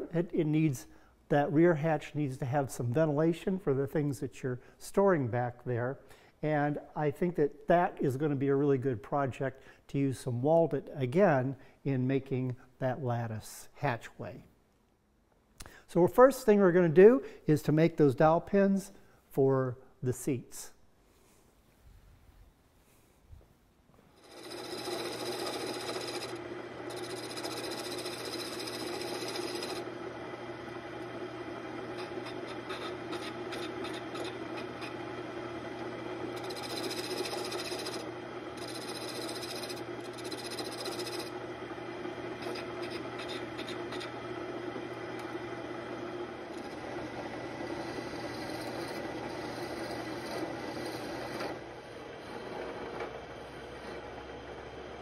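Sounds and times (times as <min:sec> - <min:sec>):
lathe motor hum: 0:24.2 - 0:55.0.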